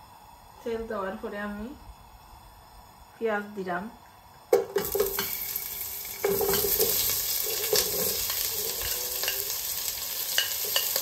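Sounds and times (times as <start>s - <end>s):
onion sizzling in oil: 4.4s - 11.0s
utensil scraping pan: 6.1s - 9.6s.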